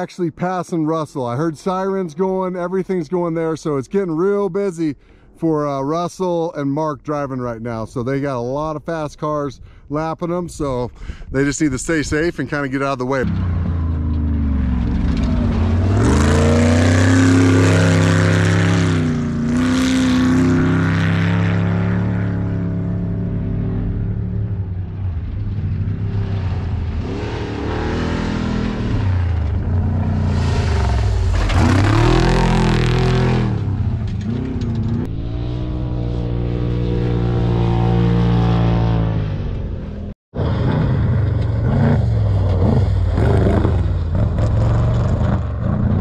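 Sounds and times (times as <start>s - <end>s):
low engine hum: 13.0s - 46.0s
race vehicles revving past: 13.2s - 24.8s, 25.7s - 39.8s, 40.4s - 46.0s.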